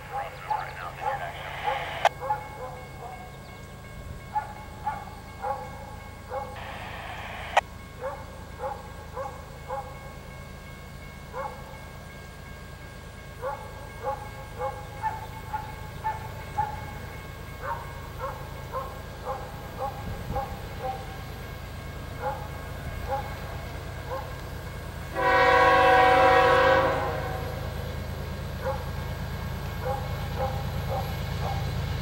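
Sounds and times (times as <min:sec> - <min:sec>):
dog barking: 0:00.1 - 0:03.2, 0:04.3 - 0:06.8, 0:08.0 - 0:10.0, 0:11.3 - 0:11.6, 0:13.4 - 0:16.8, 0:17.6 - 0:21.2, 0:22.2 - 0:23.4, 0:24.0 - 0:24.4, 0:28.6 - 0:29.0, 0:29.8 - 0:31.7.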